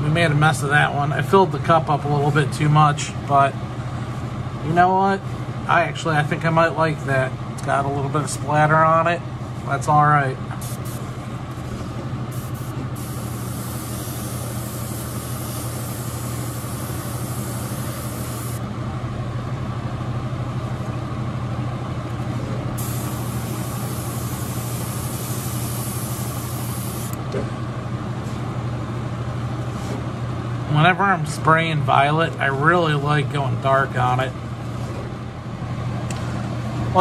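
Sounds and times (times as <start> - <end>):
exhaust fan hum: 0.0 - 37.0
airbrush spraying hiss: 10.6 - 11.1, 12.3 - 18.6, 22.8 - 27.2.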